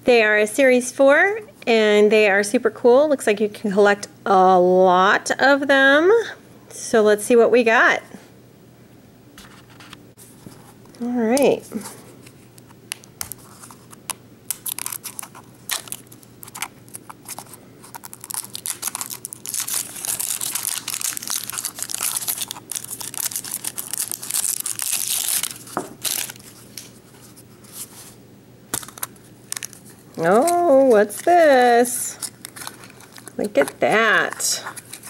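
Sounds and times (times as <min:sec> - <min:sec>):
plastic wrapping tearing and crinkling: 0:12.9 - 0:27.0, 0:28.8 - 0:31.4, 0:32.1 - 0:35.0.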